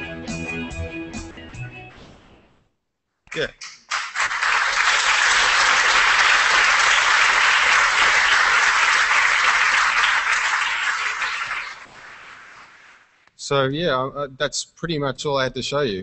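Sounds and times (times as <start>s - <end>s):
audience applauding: 3.4s - 13.1s.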